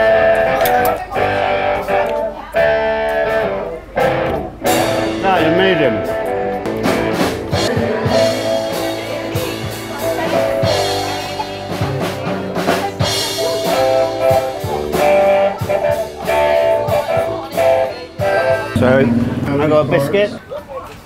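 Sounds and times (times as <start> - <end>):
live rock band: 0.0 - 20.2
electric guitar: 0.0 - 20.4
drum kit: 4.0 - 20.2.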